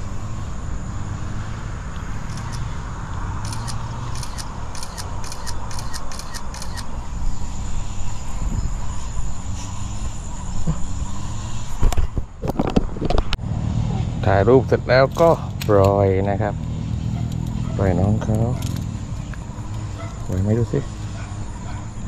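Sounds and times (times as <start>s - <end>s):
wind buffeting microphone: 6.8s - 13.4s.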